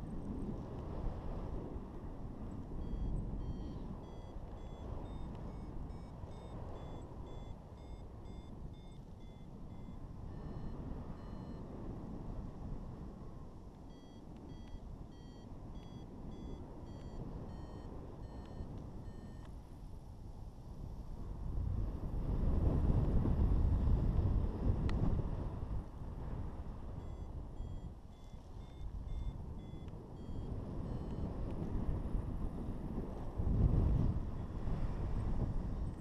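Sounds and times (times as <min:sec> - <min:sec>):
wind rush on microphone: 0:00.0 - 0:36.0
variometer beeping in short chirps: 0:02.8 - 0:11.6, 0:13.9 - 0:19.5, 0:27.0 - 0:31.3.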